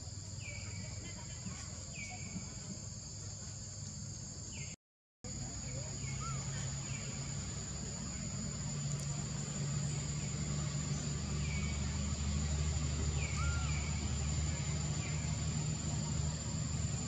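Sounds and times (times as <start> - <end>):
high insect drone: 5.3 - 17.0
low motor hum: 5.3 - 17.0.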